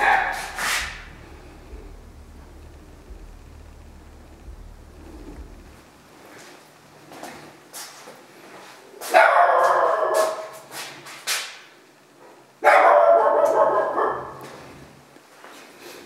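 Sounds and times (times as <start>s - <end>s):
dog barking: 0.0s - 0.6s, 9.1s - 10.6s, 12.6s - 14.5s.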